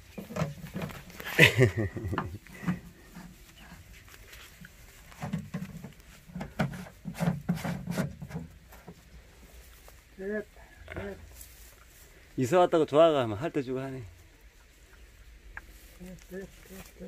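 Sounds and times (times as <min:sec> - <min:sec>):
puppies rustling in straw: 0:03.0 - 0:05.2, 0:11.3 - 0:12.3, 0:14.1 - 0:17.0.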